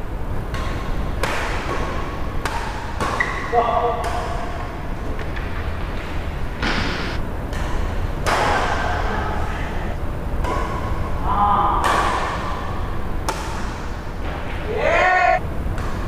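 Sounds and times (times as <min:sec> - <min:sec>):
racket hitting shuttlecock: 0:00.5 - 0:05.5, 0:06.6 - 0:09.0, 0:10.4 - 0:11.1, 0:11.8 - 0:14.4, 0:15.8 - 0:16.0.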